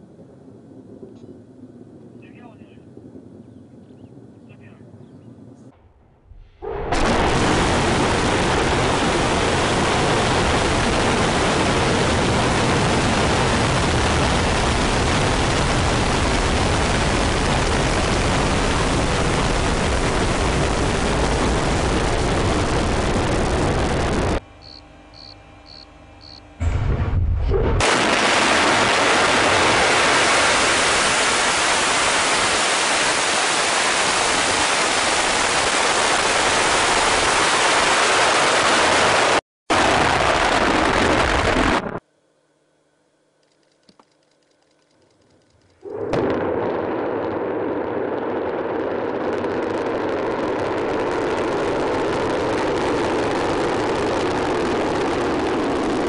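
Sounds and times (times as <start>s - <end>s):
brief low rumble: 5.6s - 7.2s, 26.6s - 27.9s
rocket engines rushing: 45.7s - 56.0s.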